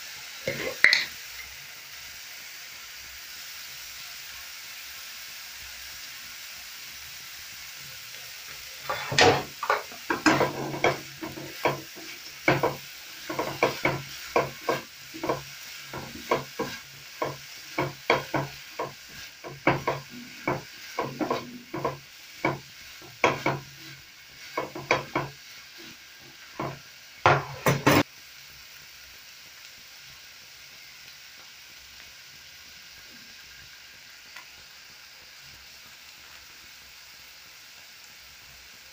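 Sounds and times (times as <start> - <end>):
food sizzling in a frying pan: 0.0 - 38.9
spatula scraping and tossing food: 8.8 - 28.1.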